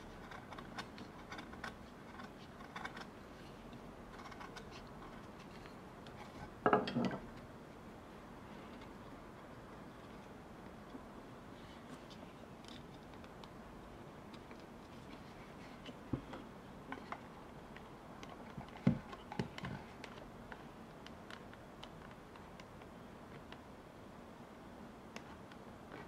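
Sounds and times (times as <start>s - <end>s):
carving tool ticks and scrapes: 0.1s - 5.4s.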